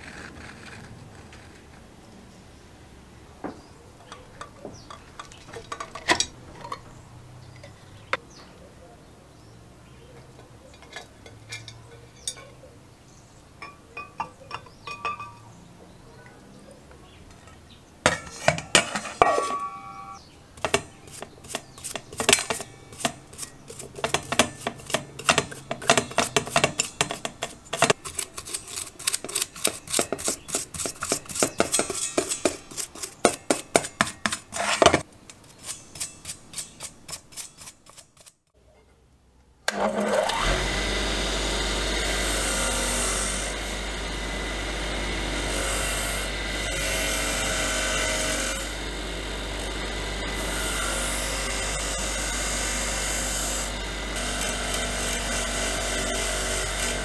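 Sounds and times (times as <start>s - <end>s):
brush scrubbing metal: 20.6s - 38.4s
bench grinder humming: 39.7s - 57.0s.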